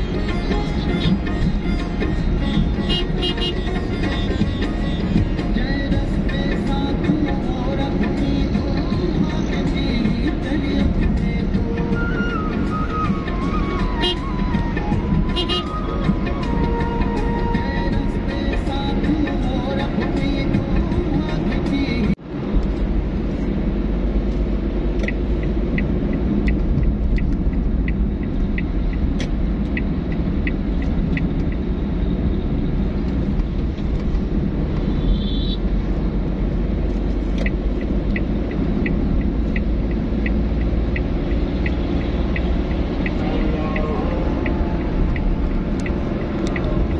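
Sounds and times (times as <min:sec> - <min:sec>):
car engine and tyres rumbling: 0:00.0 - 0:46.9
turn signal ticking: 0:00.0 - 0:46.9.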